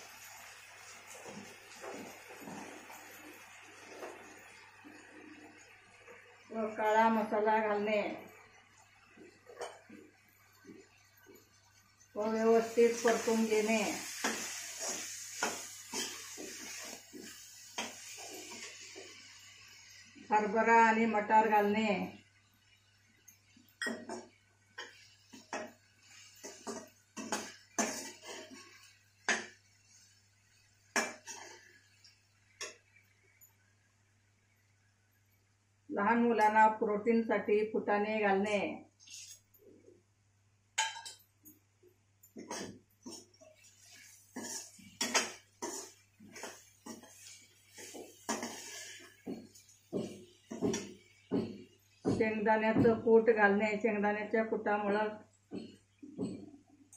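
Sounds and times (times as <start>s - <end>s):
metal ladle scraping a pan: 12.6s - 19.4s, 24.8s - 30.1s, 39.0s - 39.5s, 42.4s - 51.0s.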